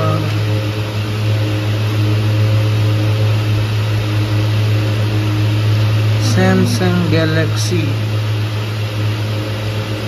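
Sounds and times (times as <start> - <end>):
steady low hum: 0.0 - 10.0
faint higher tones: 6.0 - 8.5.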